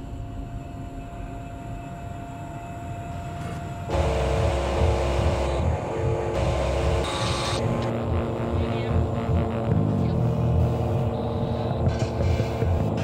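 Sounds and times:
low steady hum: 0.0 - 13.0
gas torch flame roaring: 3.4 - 13.0.

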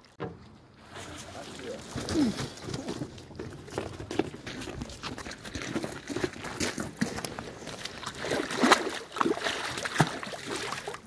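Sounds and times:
footsteps on gravel: 1.0 - 8.5
fish thrashing and splashing in water: 5.6 - 11.0.

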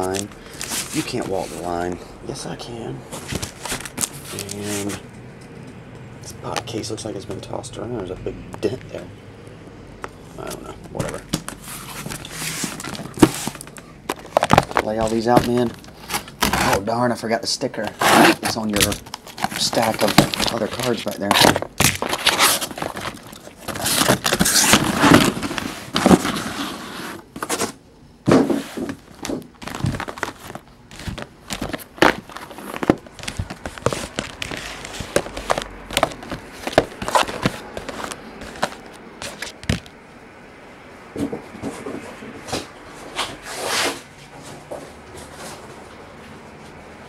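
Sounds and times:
plastic crinkling and scraping: 0.0 - 2.0, 3.1 - 5.1, 10.4 - 40.0.

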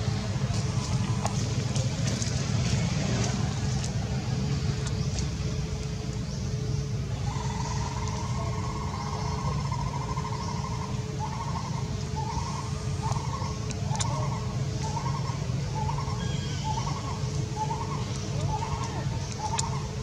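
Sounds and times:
vehicle engine rumble: 0.0 - 20.0.

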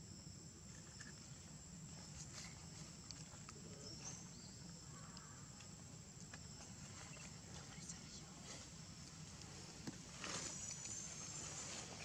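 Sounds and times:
soft ticks and rustles: 1.9 - 4.3, 5.1 - 12.0
faint high chirp: 10.2 - 12.0.

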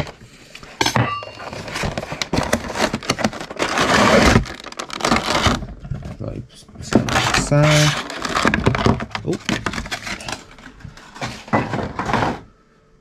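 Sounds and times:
packaging being opened by hand: 1.4 - 11.5.

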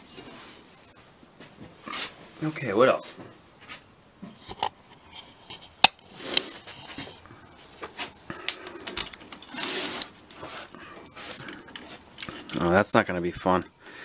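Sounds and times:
rustle: 0.0 - 12.7
metal tool clinks and clicks: 8.6 - 10.4, 11.4 - 12.8.

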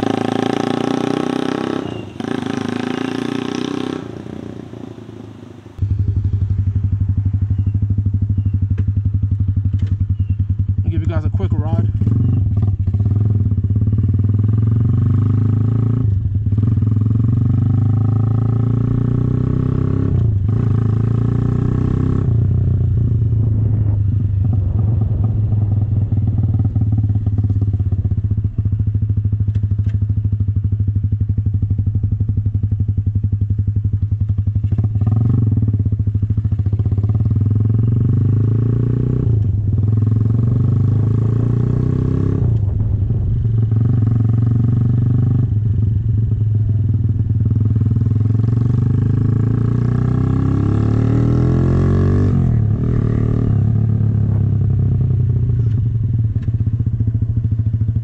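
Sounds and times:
loud motorcycle engine: 0.0 - 58.0.

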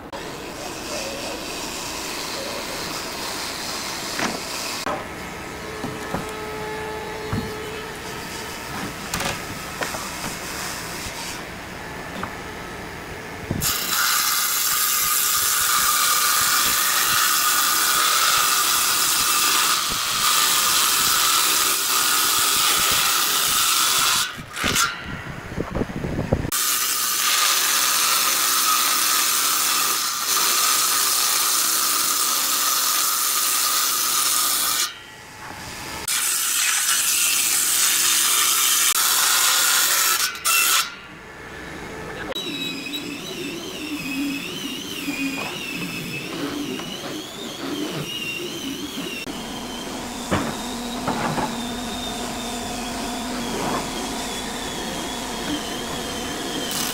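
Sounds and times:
table saw cutting wood: 0.0 - 25.0, 26.5 - 41.1, 42.2 - 56.9.

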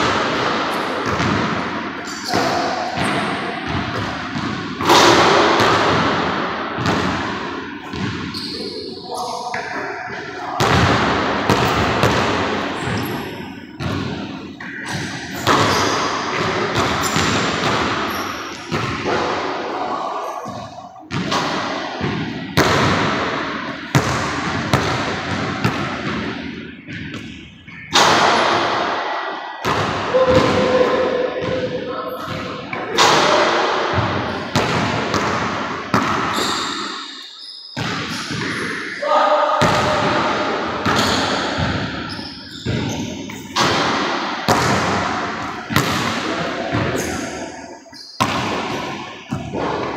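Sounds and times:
basketball hitting rim and backboard: 0.0 - 8.7, 9.5 - 19.6, 20.4 - 28.9, 29.6 - 37.0, 37.8 - 38.8, 39.6 - 47.4, 48.2 - 49.9
basketball bouncing on wooden floor: 7.9 - 8.4, 40.8 - 45.1, 45.7 - 47.1.

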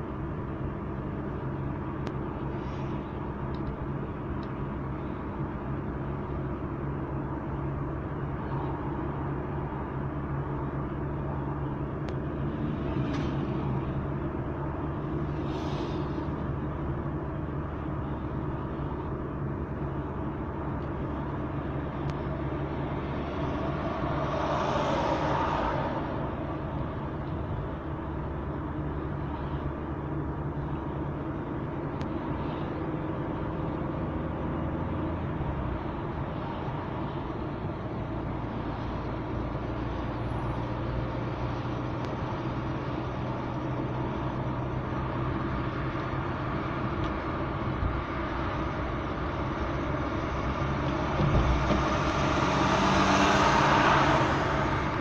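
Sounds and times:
car engine and tyre noise: 0.0 - 55.0
passing vehicle rush: 19.8 - 55.0.

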